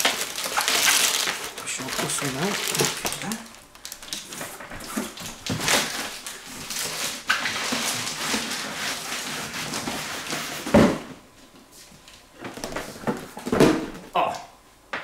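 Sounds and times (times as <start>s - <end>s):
packaging rustling and scraping: 0.0s - 11.1s.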